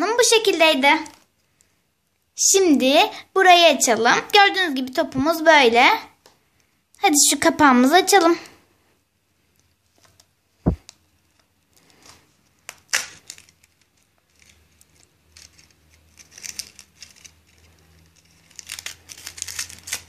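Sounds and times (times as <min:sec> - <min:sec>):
aluminium foil crinkling and tearing: 0:11.3 - 0:20.0.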